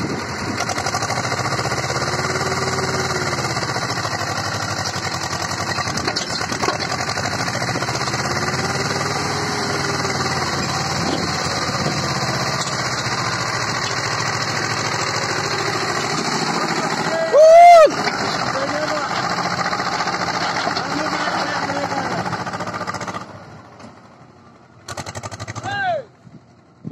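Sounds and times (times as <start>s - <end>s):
tractor diesel engine throbbing: 0.0s - 26.9s
clunks: 4.8s - 8.1s, 11.0s - 16.8s, 18.0s - 21.6s.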